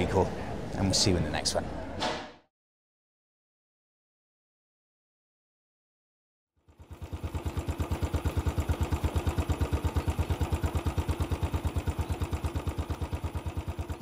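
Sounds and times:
motorcycle engine idling: 0:06.6 - 0:14.0.

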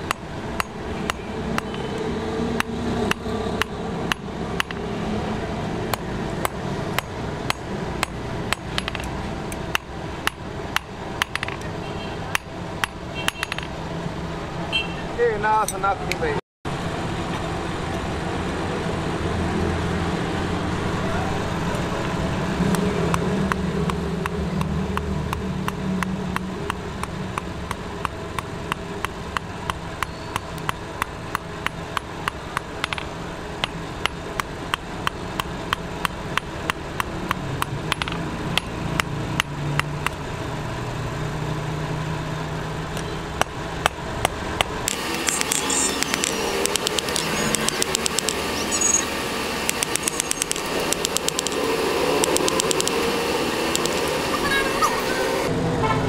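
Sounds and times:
hammer beating steel on anvil: 0:02.6 - 0:04.9, 0:05.9 - 0:11.6.

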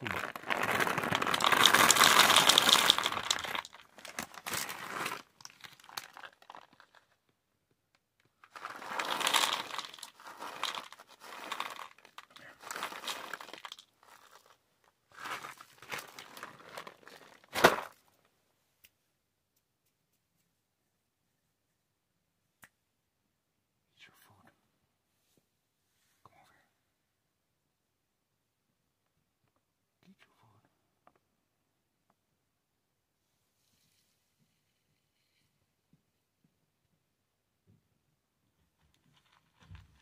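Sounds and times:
cat food bag crinkling: 0:00.0 - 0:07.2, 0:08.4 - 0:18.0, 0:38.9 - 0:40.0.

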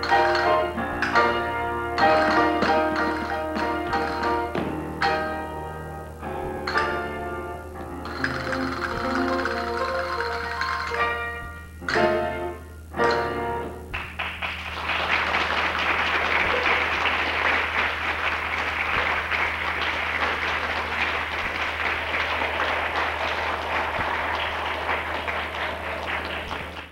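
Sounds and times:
steady low hum: 0:00.0 - 0:26.9
audience applauding: 0:08.1 - 0:10.9, 0:14.0 - 0:26.9.

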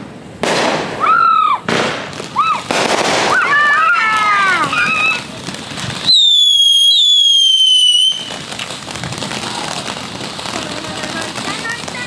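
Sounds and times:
fountain firework crackling hiss: 0:00.0 - 0:12.0
firework whistle: 0:00.8 - 0:09.9.

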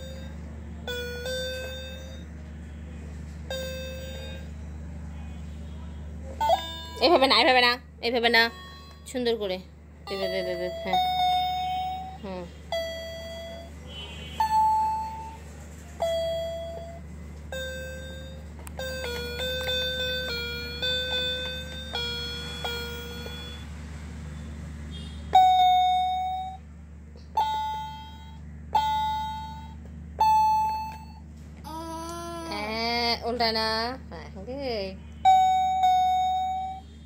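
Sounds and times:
toy keyboard electronic notes: 0:00.0 - 0:02.3, 0:03.5 - 0:04.6, 0:06.4 - 0:09.4, 0:10.1 - 0:13.7, 0:14.4 - 0:15.4, 0:16.0 - 0:23.7, 0:25.4 - 0:26.6, 0:27.3 - 0:33.1, 0:35.3 - 0:36.9.

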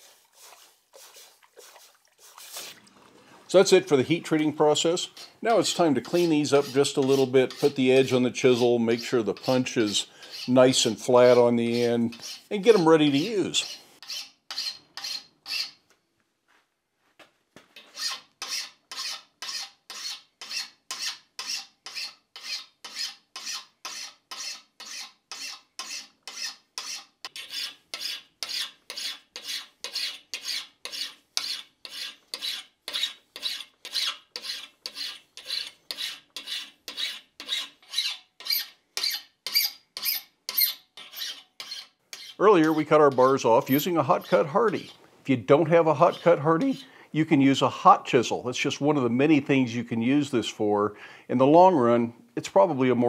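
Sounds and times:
hand file rasping on steel: 0:04.9 - 0:15.8, 0:17.8 - 0:45.0, 0:45.8 - 0:46.9.

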